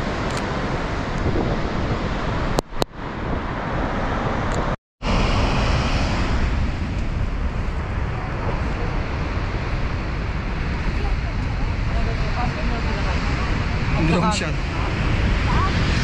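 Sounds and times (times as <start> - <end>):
heavy surf rushing: 0.0 - 16.0
wind buffeting microphone: 0.0 - 16.0.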